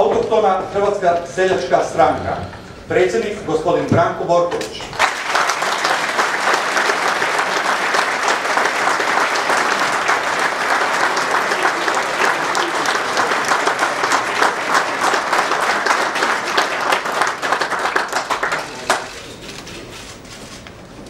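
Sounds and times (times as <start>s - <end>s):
audience applauding: 4.8s - 19.7s.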